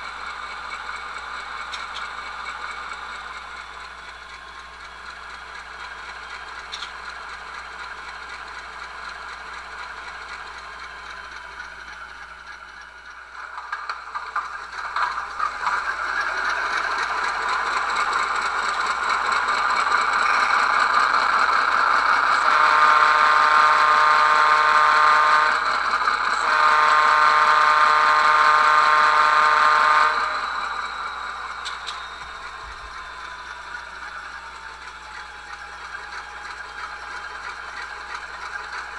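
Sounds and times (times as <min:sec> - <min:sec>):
model locomotive engine sound: 0:00.0 - 0:38.9
locomotive horn blasts: 0:22.4 - 0:25.7, 0:26.4 - 0:30.7.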